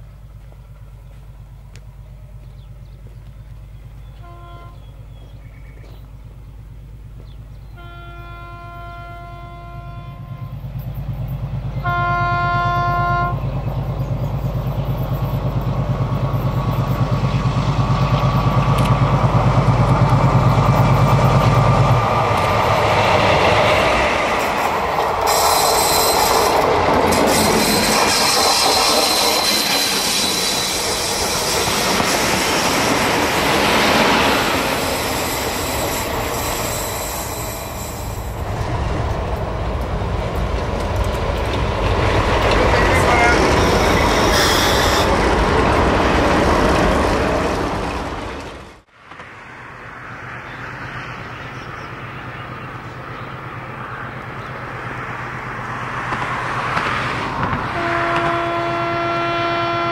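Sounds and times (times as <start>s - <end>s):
locomotive engine running: 0.0s - 48.9s
locomotive horn blasts: 4.1s - 5.1s, 7.7s - 10.6s, 11.8s - 13.4s, 42.8s - 45.2s, 57.7s - 59.9s
wheels clattering over rail joints: 14.5s - 49.3s.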